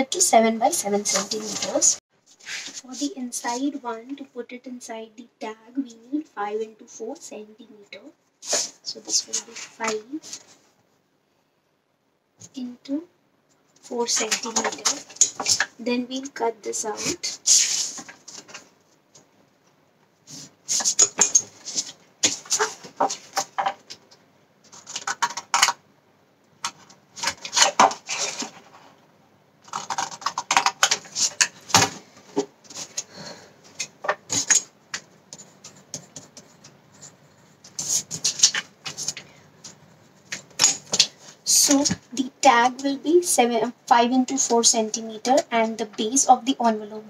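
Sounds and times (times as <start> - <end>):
paper rustling: 1.0 - 3.7, 17.0 - 18.7, 20.3 - 23.8, 35.3 - 42.0.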